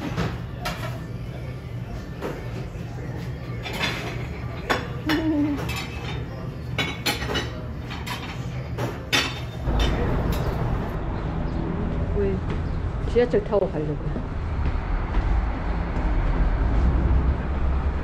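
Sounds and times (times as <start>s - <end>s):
dishes and utensils clattering: 0.0s - 1.2s, 2.1s - 11.0s
steady low hum: 7.6s - 18.0s
loud low rumble: 9.7s - 18.0s.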